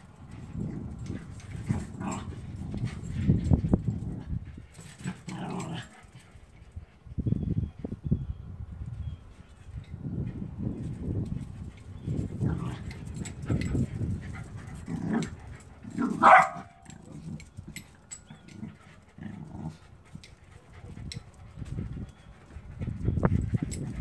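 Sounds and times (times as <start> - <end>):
dog barking: 16.1 - 16.8.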